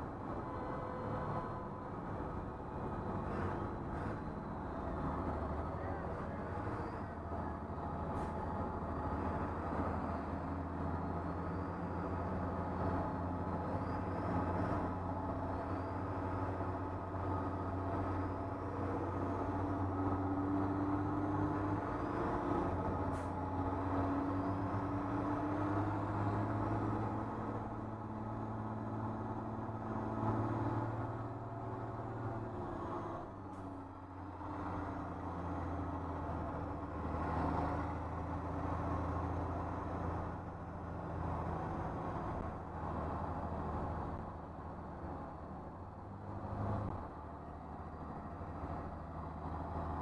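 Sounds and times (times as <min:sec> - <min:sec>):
bus engine running under load: 0:00.0 - 0:50.0.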